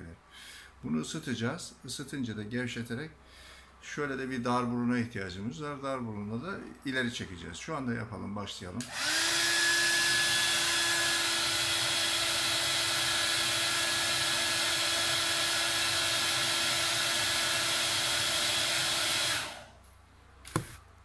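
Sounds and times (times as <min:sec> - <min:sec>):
hair dryer running: 0:08.8 - 0:19.7.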